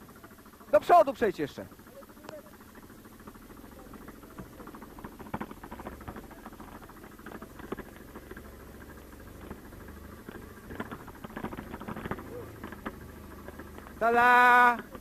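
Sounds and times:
quad engine humming: 0.0 - 15.0
branches scraping and crackling: 4.7 - 14.7.

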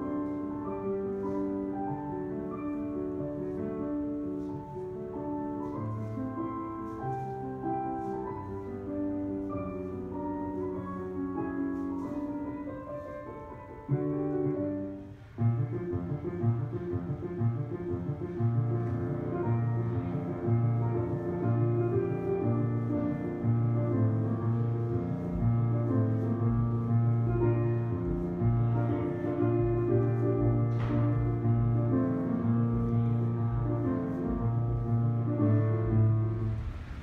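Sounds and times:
slow classical piano music: 0.0 - 37.0.

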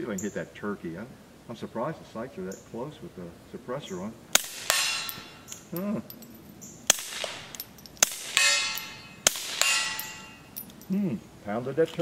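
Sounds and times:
suppressed pistol shots: 4.4 - 5.6, 6.9 - 10.2
steel target ringing: 4.6 - 5.5, 7.1 - 10.8.

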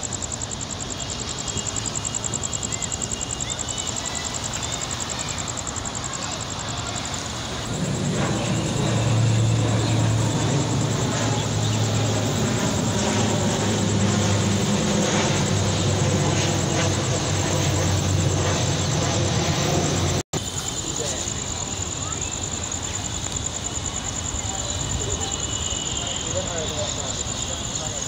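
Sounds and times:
steady low hum: 0.0 - 20.2.

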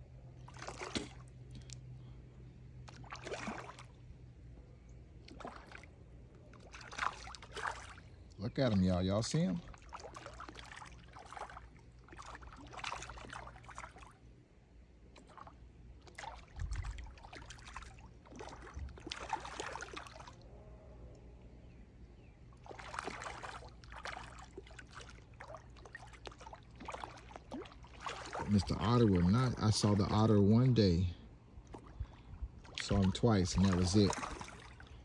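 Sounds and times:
low steady rumble: 0.0 - 35.0
fish splashing at water surface: 0.4 - 1.9, 2.8 - 4.0, 5.2 - 5.9, 6.5 - 8.1, 9.6 - 14.2, 15.1 - 20.4, 22.6 - 30.2, 31.6 - 35.0.

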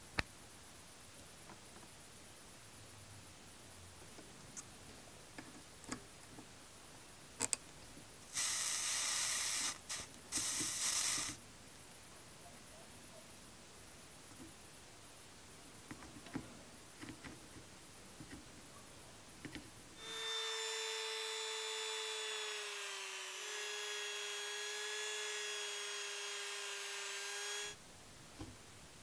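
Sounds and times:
rotary tool high whine: 8.4 - 11.4, 20.0 - 27.8.

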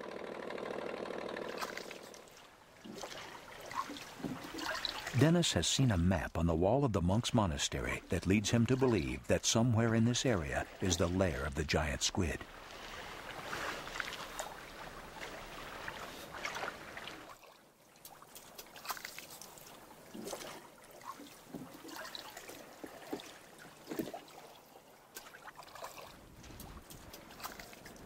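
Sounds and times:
water splashing against boat hull: 1.5 - 5.2, 9.8 - 28.0.

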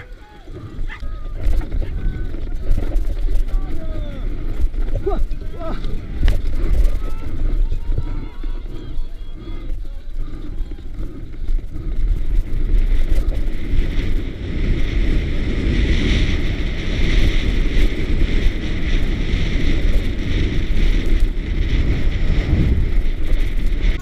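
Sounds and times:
bike rattling over rough ground: 0.0 - 24.0
wind buffeting microphone: 0.0 - 24.0.

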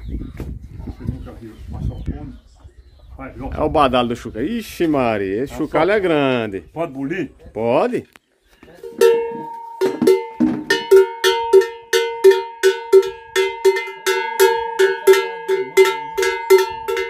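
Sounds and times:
cattle bell clanking: 8.8 - 17.0.

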